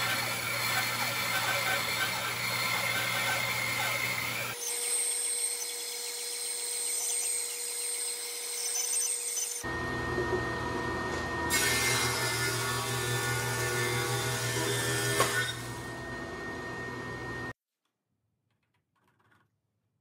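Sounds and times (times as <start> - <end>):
bandsaw cutting wood: 0.0 - 17.4
motor hum: 9.6 - 17.5.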